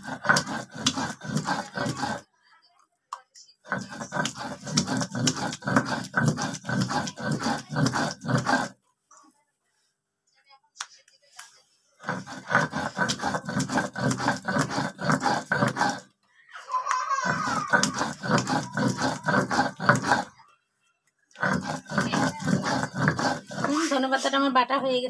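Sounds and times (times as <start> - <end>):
stone roller scraping on stone slab: 0.0 - 2.3, 3.7 - 8.8, 12.0 - 16.1, 17.2 - 20.4, 21.4 - 24.4.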